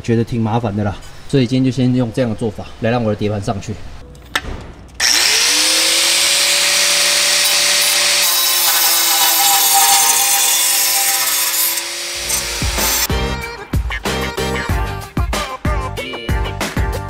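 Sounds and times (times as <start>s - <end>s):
angle grinder cutting metal: 5.0s - 13.1s.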